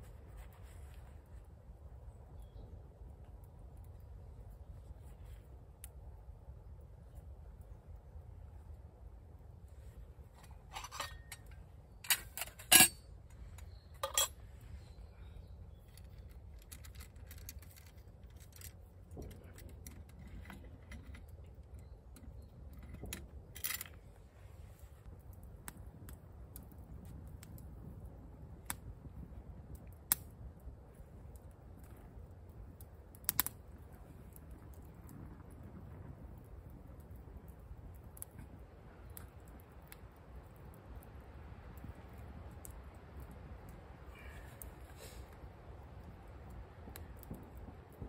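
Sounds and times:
metal pot clinking and rattling: 10.4s - 11.5s, 12.1s - 13.0s, 14.0s - 14.4s
wood fire ticking: 15.2s - 24.0s, 25.0s - 48.0s.

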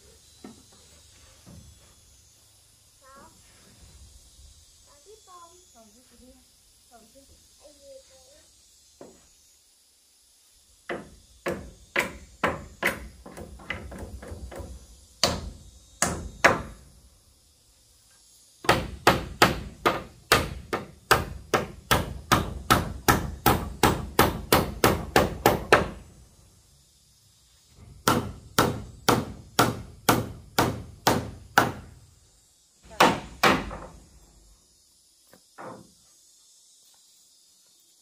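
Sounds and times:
hammer nailing into wood: 10.9s - 16.7s, 18.6s - 26.0s, 28.0s - 31.9s, 33.0s - 33.9s.

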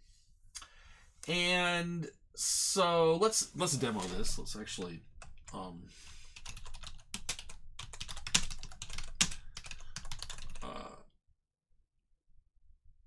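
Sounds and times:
typing on computer keyboard: 6.4s - 10.6s.

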